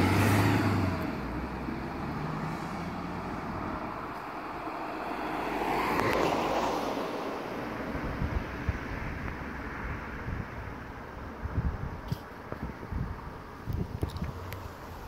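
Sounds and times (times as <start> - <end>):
car passing: 0.0 - 11.4
road noise hiss: 0.0 - 15.0.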